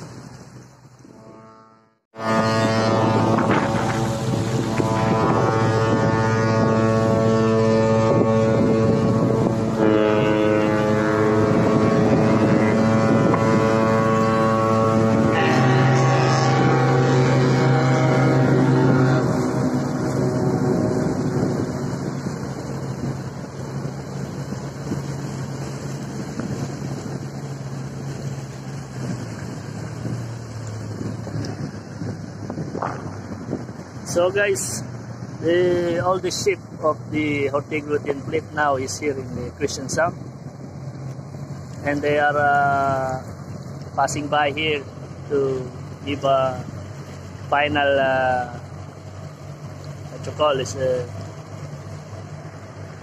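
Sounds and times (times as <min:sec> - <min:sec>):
boat engine droning: 0:00.0 - 0:53.0
ship's horn blast: 0:01.0 - 0:36.5
wind on microphone: 0:02.2 - 0:38.5.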